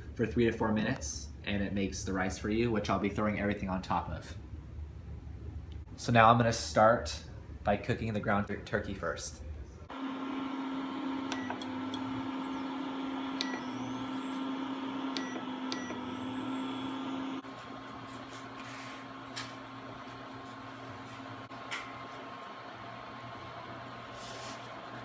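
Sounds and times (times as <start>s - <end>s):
cooktop electrical hum and fan: 0.0s - 25.0s
short beeps: 14.7s - 17.3s.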